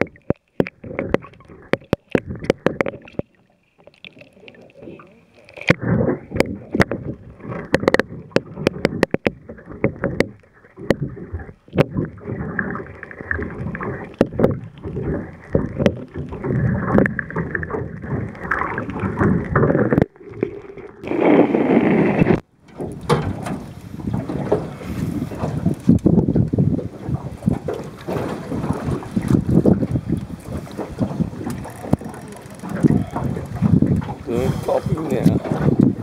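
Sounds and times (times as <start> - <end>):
sharp clicks and knocks: 0.0 - 4.3, 5.5 - 20.6, 22.3 - 24.6
underwater sloshing and rushing: 0.0 - 36.0
wind on microphone: 5.7 - 36.0.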